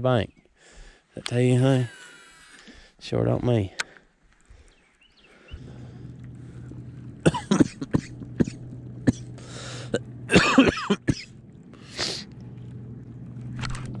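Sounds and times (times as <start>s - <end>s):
electric motor humming: 5.5s - 14.0s
person coughing hard: 7.2s - 9.3s, 9.9s - 11.3s.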